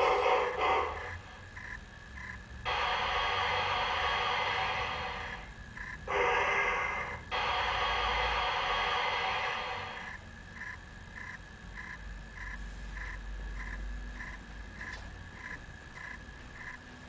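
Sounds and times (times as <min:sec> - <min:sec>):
model locomotive steam hissing: 0:00.0 - 0:01.4, 0:02.6 - 0:10.2.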